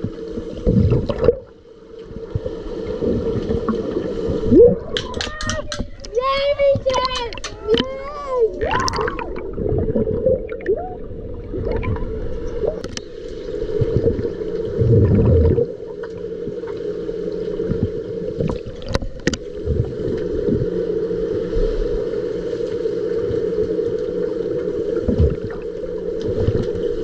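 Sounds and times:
underwater splash: 0.0s - 5.8s, 8.6s - 16.9s, 24.3s - 27.0s
underwater hum: 0.0s - 27.0s
water turbulence and bubbling: 0.0s - 27.0s.

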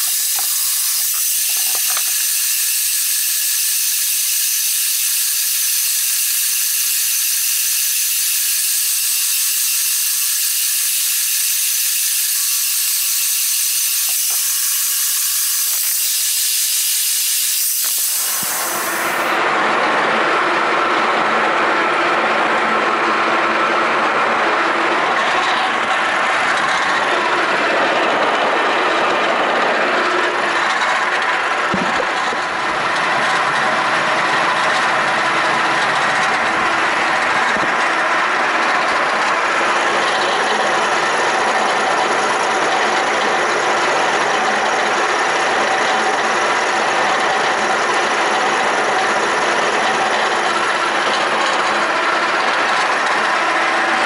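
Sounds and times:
milling machine cutting steel: 0.0s - 19.5s.

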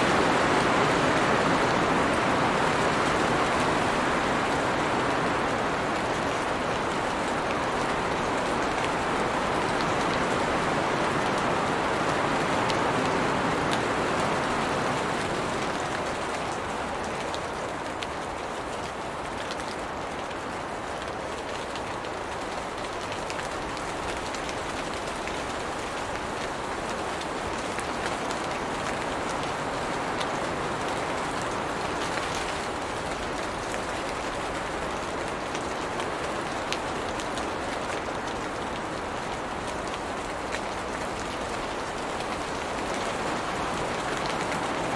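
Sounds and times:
rain falling on leaves: 0.0s - 44.9s.

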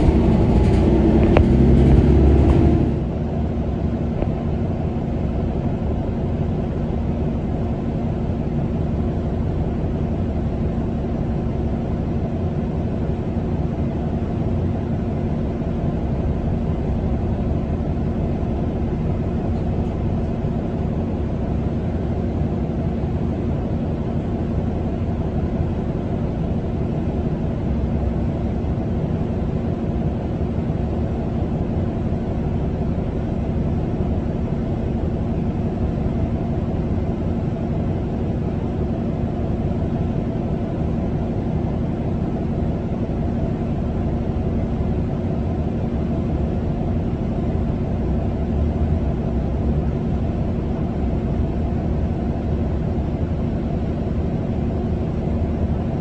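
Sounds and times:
road traffic rumble: 0.0s - 6.2s.

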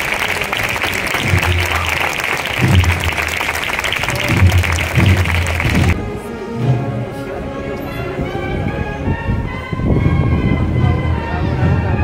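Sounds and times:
crowd applauding: 0.0s - 6.0s
low notes: 1.0s - 12.0s.

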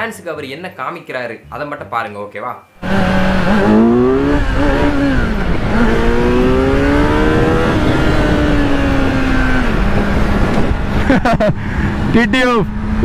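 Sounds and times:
motorcycle engine accelerating: 2.8s - 13.0s
wind rush on microphone: 3.0s - 13.0s.

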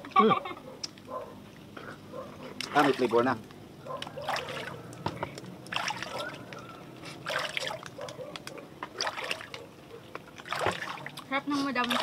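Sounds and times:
river water sloshing and splashing: 2.6s - 3.4s, 4.0s - 12.0s.

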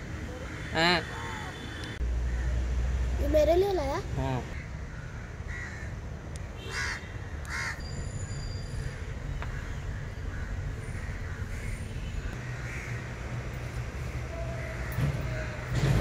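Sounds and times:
crows cawing: 0.4s - 2.6s, 4.5s - 6.0s, 6.6s - 7.8s, 9.4s - 13.1s, 14.4s - 15.6s.

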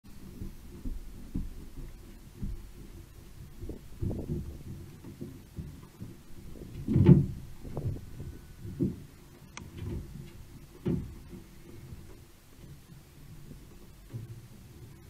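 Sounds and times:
thuds on metal roof: 0.4s - 9.1s, 9.7s - 11.5s.

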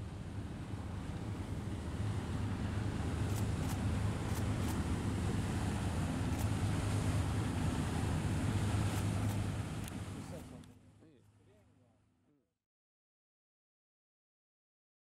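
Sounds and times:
motor boat engine drone: 0.0s - 11.0s
water rushing: 0.2s - 10.4s.

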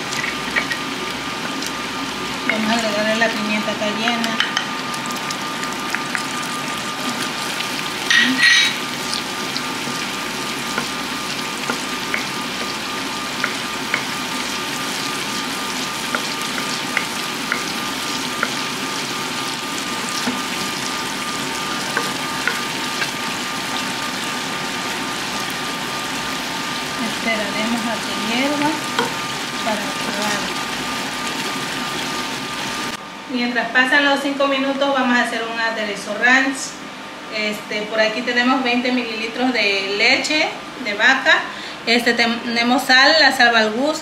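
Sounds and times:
sauce sizzling in a saucepan: 0.0s - 33.0s
wooden spoon stirring: 6.9s - 24.1s.

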